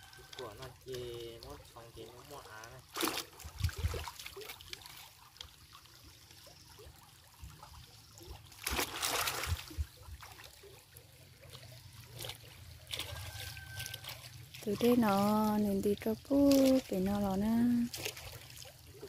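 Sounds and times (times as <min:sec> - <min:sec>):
stream trickling over stones: 0:00.0 - 0:19.0
branches splashing through water: 0:02.3 - 0:05.8, 0:07.6 - 0:19.0.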